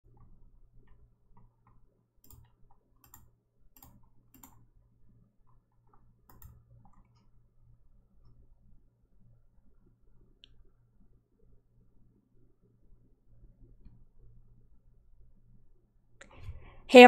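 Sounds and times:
faint low hum: 0:00.0 - 0:17.0
sharp clicks: 0:02.2 - 0:04.6.

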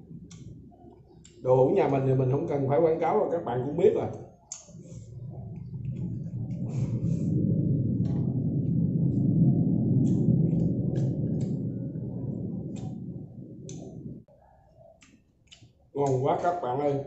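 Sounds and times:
loud low rumble: 0:04.7 - 0:14.3.

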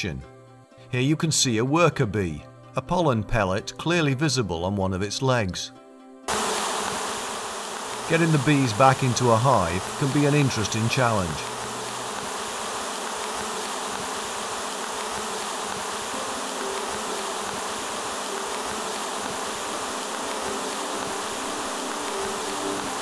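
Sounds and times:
bee swarm buzzing: 0:06.3 - 0:23.0.

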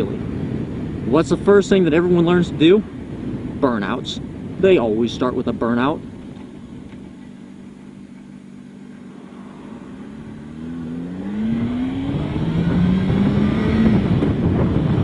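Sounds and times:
motorcycle engine accelerating: 0:06.1 - 0:15.0.

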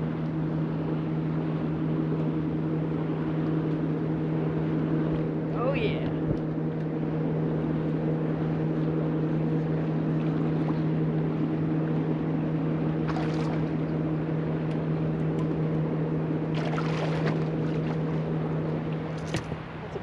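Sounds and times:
electric trolling motor humming: 0:00.0 - 0:20.0
water splashes: 0:12.8 - 0:15.7, 0:16.4 - 0:20.0.

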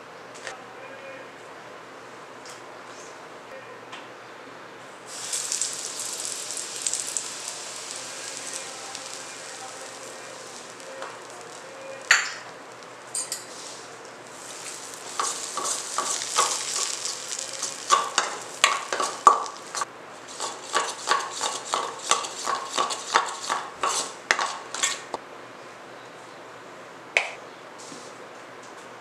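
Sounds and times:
hot oil sizzling: 0:05.0 - 0:25.2
metal spoon scraping steel bowl: 0:17.6 - 0:25.1.

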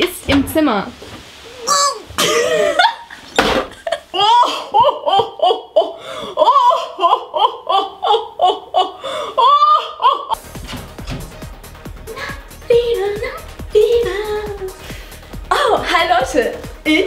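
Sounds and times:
woman laughing hard: 0:02.2 - 0:10.4.

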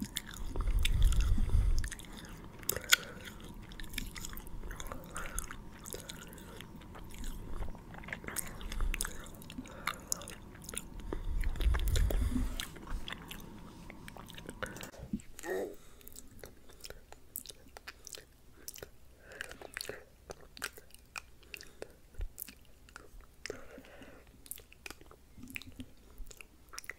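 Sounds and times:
low rumble: 0:00.0 - 0:15.2
mouth clicks and smacks: 0:16.1 - 0:23.6.

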